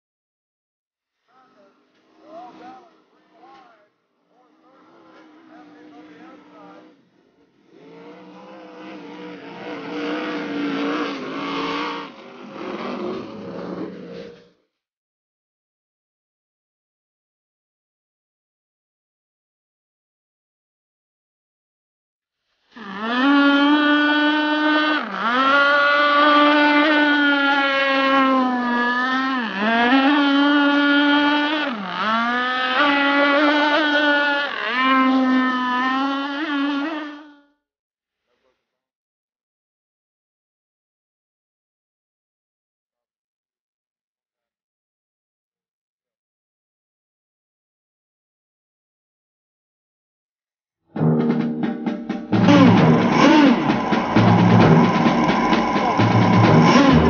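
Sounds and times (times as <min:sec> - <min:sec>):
model boat engine buzzing: 0:04.4 - 0:14.4, 0:22.7 - 0:37.5, 0:52.3 - 0:57.0
powerboat engine running hard: 0:52.4 - 0:57.0.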